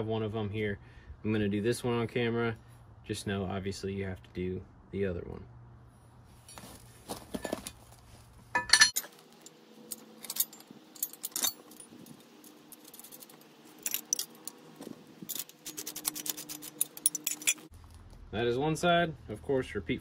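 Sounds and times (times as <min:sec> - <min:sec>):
metal hardware clinking: 0:08.6 - 0:17.7.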